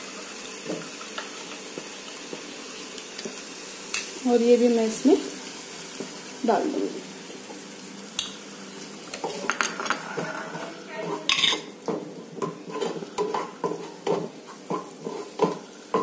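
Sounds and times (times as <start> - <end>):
soft sizzle: 0.0 - 16.0
spatula scraping frying pan: 9.1 - 16.0.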